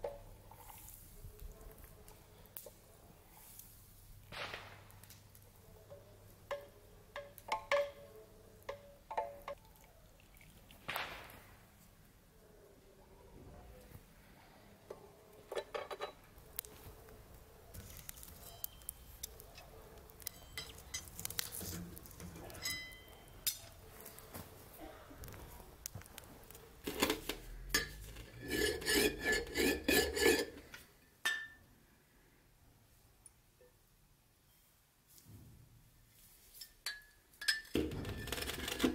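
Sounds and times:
scrapes and ticks: 0:16.4 - 0:24.4
ringing clinks: 0:22.6 - 0:23.6.

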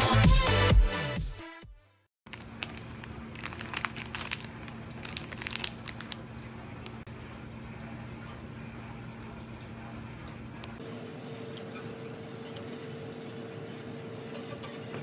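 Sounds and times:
plastic bag crinkling: 0:02.3 - 0:07.0.

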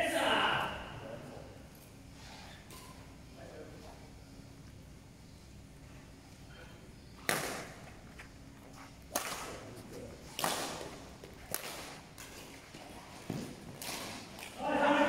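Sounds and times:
racket hitting shuttlecock: 0:09.1 - 0:09.6, 0:10.3 - 0:12.4, 0:13.3 - 0:14.6.

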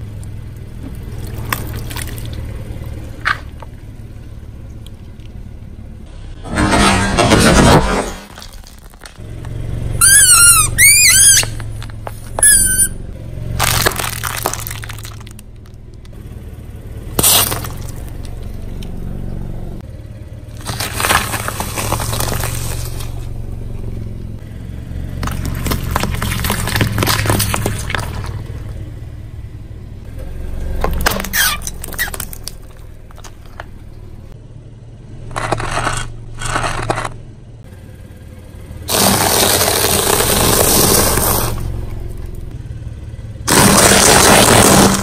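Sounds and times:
car engine running under load: 0:00.0 - 0:45.0
tyre crushing plastic objects: 0:06.5 - 0:09.2, 0:13.6 - 0:15.5, 0:17.2 - 0:18.1, 0:20.6 - 0:23.2, 0:25.2 - 0:28.7, 0:30.8 - 0:33.7, 0:38.9 - 0:41.7, 0:43.5 - 0:45.0.

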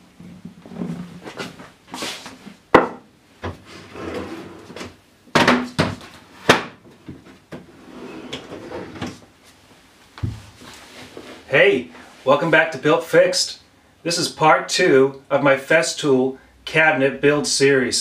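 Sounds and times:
cases sliding on drawer trays: 0:07.7 - 0:09.2.

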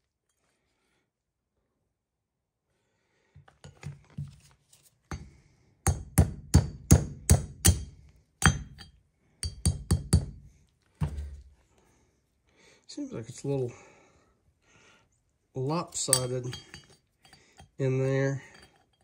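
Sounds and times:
hammer striking metal: 0:05.9 - 0:10.3.

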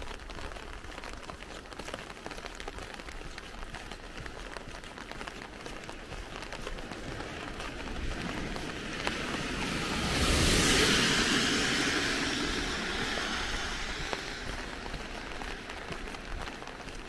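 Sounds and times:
rain pattering on umbrella: 0:00.0 - 0:17.0
loud rushing noise: 0:07.4 - 0:16.4.

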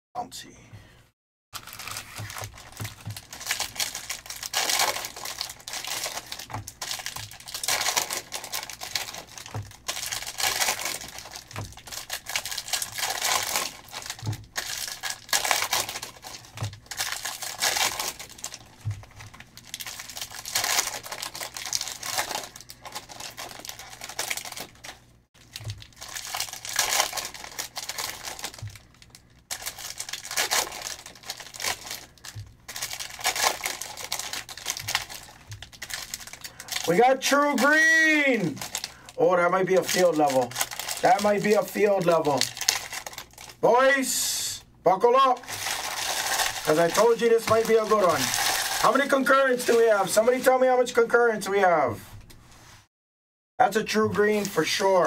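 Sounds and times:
foil wrappers crinkling and tearing: 0:01.6 - 0:43.6, 0:45.4 - 0:50.6.

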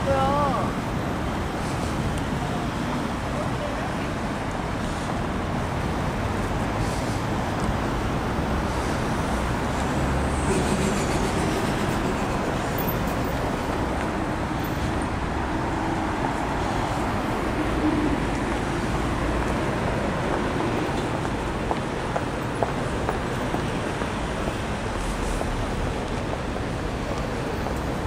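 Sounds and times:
road traffic passing: 0:00.0 - 0:28.0.

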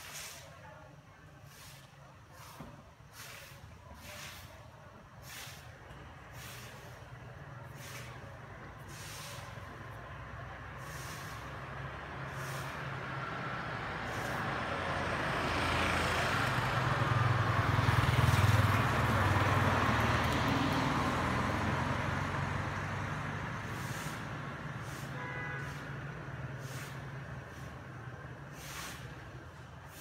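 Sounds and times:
motorbike passing by: 0:07.6 - 0:30.0.

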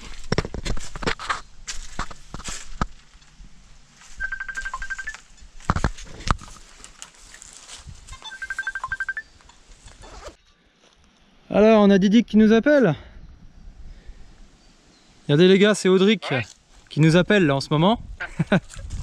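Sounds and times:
phone ringing high beeps: 0:04.1 - 0:05.3, 0:08.2 - 0:09.4.

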